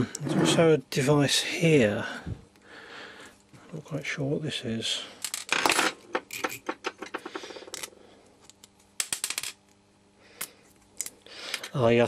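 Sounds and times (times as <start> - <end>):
small hard parts clicking and tapping: 5.2 - 9.8.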